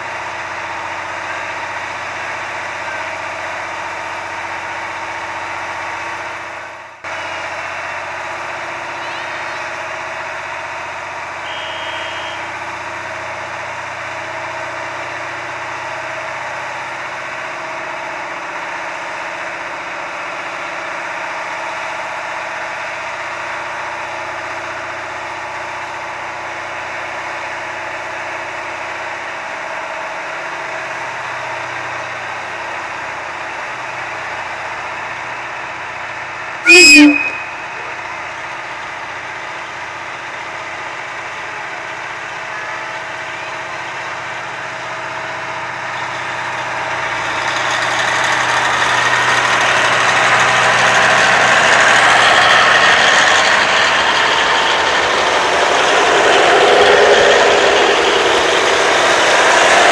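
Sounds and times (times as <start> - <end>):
diesel railcar engine idling: 0.0 - 59.9
short high tone: 8.9 - 9.7, 11.5 - 12.5, 36.6 - 38.0.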